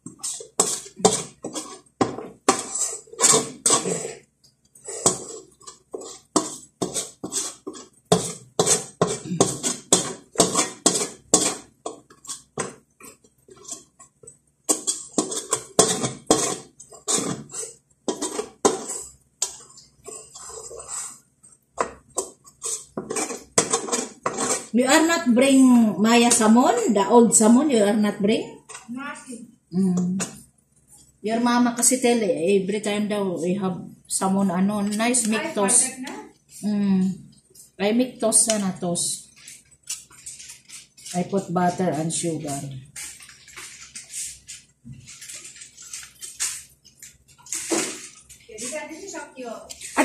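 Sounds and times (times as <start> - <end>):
utensil scraping a steel pot: 0.0 - 25.4, 37.6 - 50.0.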